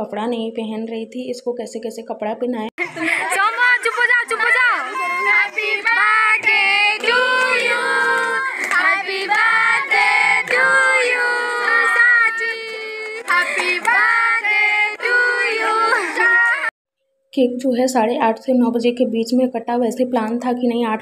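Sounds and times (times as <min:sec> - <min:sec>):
high voices singing: 0:04.3 - 0:16.7.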